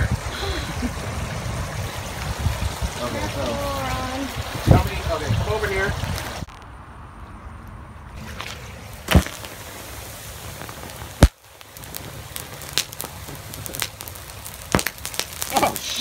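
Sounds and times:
small pops of burning sodium: 8.9 - 16.0
sodium explosion bangs: 11.0 - 16.0.

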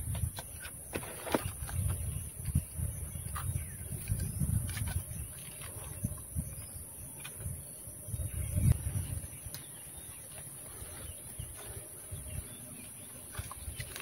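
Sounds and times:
wind buffeting microphone: 0.0 - 0.7, 1.4 - 14.0
light rustling of palm debris: 0.1 - 2.6.

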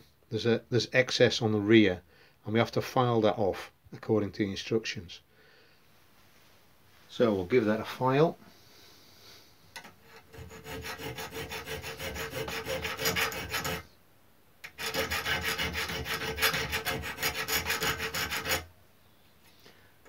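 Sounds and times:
hand file rasping on metal: 9.8 - 13.9, 14.6 - 18.7.

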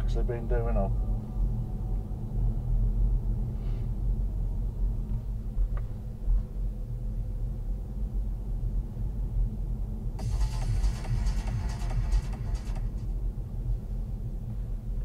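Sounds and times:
road and engine rumble in car: 0.0 - 15.0
electronic music: 10.2 - 13.2.

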